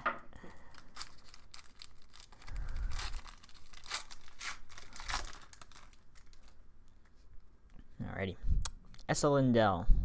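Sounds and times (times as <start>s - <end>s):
card pack wrapper tearing: 0.7s - 6.6s.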